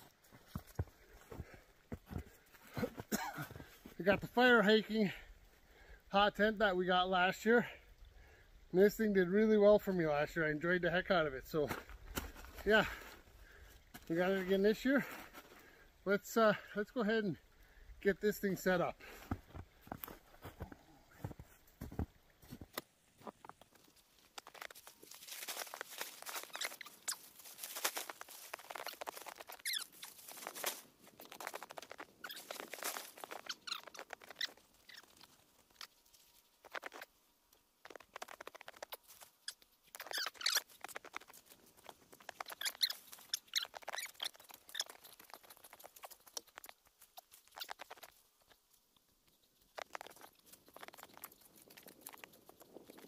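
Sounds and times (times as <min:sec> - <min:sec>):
footsteps crunching in snow: 0:00.0 - 0:04.0, 0:19.0 - 0:37.1
tent fabric crackling and rustling: 0:19.4 - 0:53.0.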